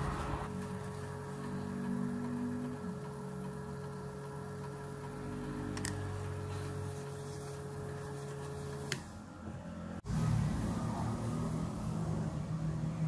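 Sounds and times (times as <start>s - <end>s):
lathe motor humming and whining: 0.0s - 9.7s.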